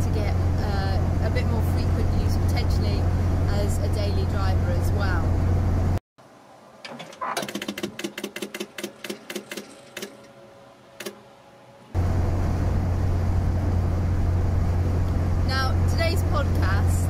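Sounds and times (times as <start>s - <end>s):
car cabin drone: 0.0s - 6.0s, 10.3s - 17.0s.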